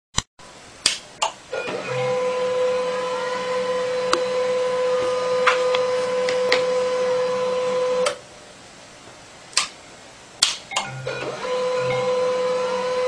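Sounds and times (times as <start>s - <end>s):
printer whine: 1.5s - 8.2s, 10.8s - 13.0s.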